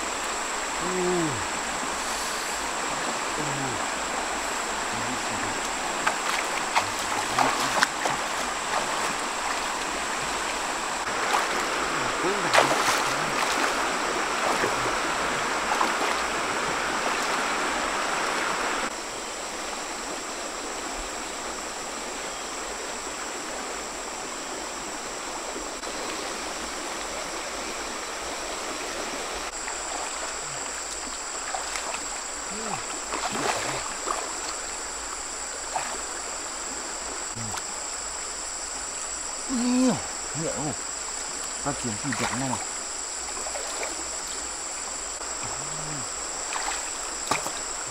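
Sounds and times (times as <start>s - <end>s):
small splashes: 0.0s - 18.9s, 29.5s - 37.9s, 39.5s - 47.9s
river water flowing: 0.0s - 47.9s
splashing from wading: 0.8s - 18.6s, 29.5s - 37.7s, 41.6s - 47.9s.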